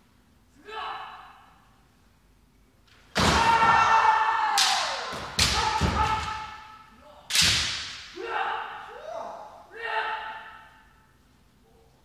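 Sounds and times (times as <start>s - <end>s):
person shouting: 0.6s - 1.4s, 3.3s - 7.2s, 8.2s - 10.8s
bamboo sword strikes: 7.3s - 8.1s.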